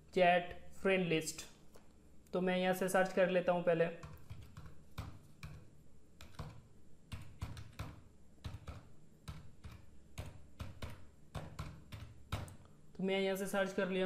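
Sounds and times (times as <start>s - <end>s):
typing on computer keyboard: 4.0s - 5.6s, 6.2s - 12.6s.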